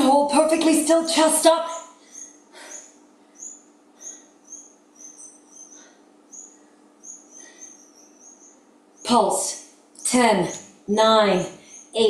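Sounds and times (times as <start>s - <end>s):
small bird chirping: 1.4s - 12.0s.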